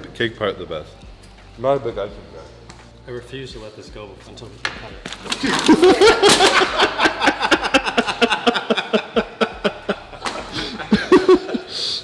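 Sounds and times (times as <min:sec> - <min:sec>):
men laughing hard: 0:05.2 - 0:12.0.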